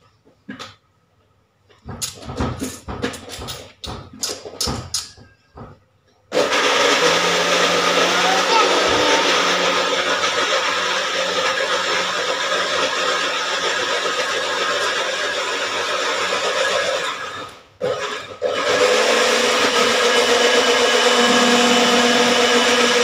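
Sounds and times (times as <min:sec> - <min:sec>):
electric blender running: 0:06.3 - 0:23.0.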